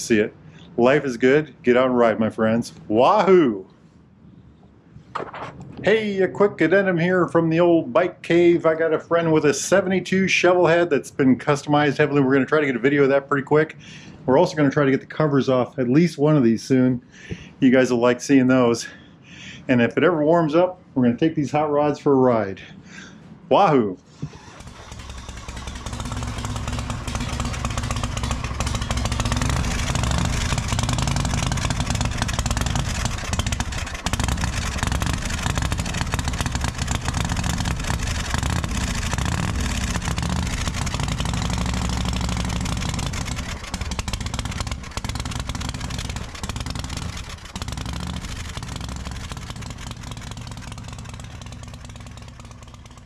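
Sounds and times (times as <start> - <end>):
motorcycle engine running: 24.3 - 53.0.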